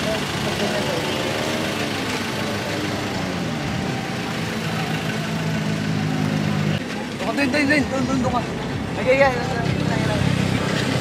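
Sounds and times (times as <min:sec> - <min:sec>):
motor scooter engine running: 0:00.0 - 0:06.8.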